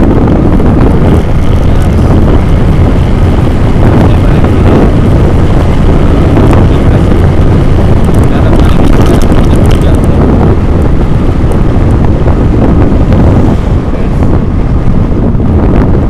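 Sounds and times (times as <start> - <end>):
vehicle running noise: 0.0 - 16.0
wind buffeting microphone: 0.0 - 16.0.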